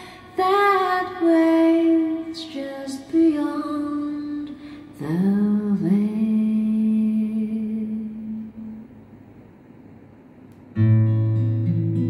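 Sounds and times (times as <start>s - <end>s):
acoustic guitar strumming: 10.8s - 12.0s.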